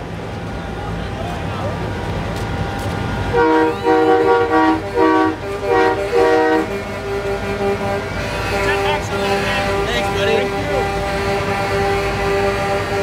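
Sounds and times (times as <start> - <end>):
crowd noise: 0.0 - 13.0
street noise: 0.0 - 13.0
truck air horn honking: 3.2 - 13.0.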